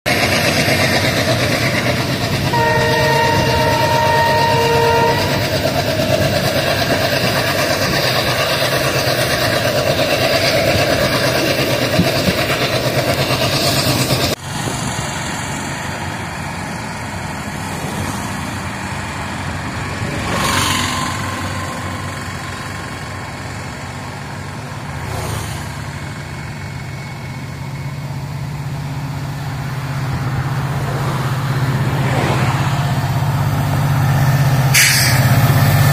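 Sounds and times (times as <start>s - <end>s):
train running noise: 0.1s - 35.9s
train horn chord: 2.5s - 5.9s
vehicles passing: 14.3s - 27.2s, 28.8s - 35.9s.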